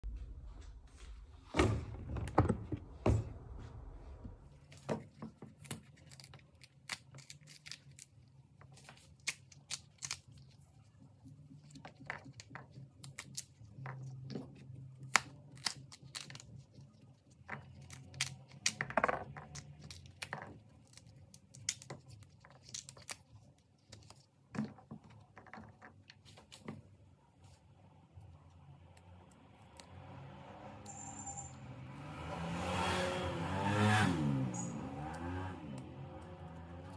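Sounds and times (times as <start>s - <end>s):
bean pods snapping open: 5.5s - 10.5s, 15.0s - 16.6s.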